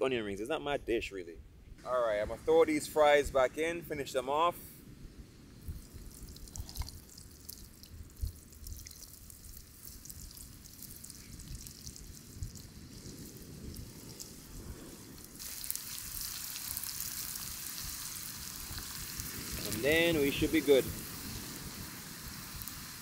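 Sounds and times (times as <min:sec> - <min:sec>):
fries sizzling in hot oil: 0:05.6 - 0:23.0.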